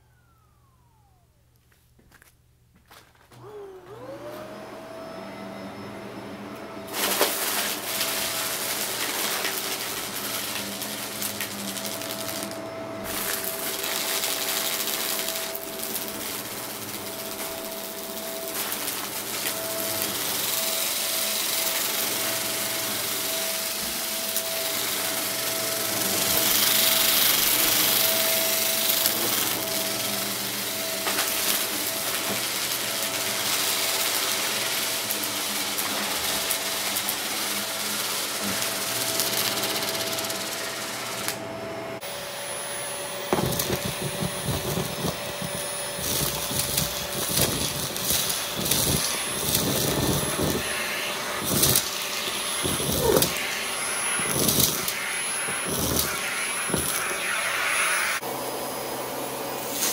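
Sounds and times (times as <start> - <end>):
vacuum cleaner motor whine: 0.0 - 2.3, 2.9 - 59.9
debris crackling in vacuum: 6.9 - 41.2, 43.3 - 57.3
vacuum suction rush: 43.2 - 58.2.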